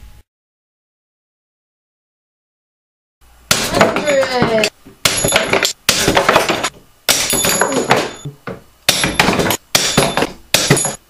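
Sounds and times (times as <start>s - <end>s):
wooden pieces clattering: 3.7s - 8.3s.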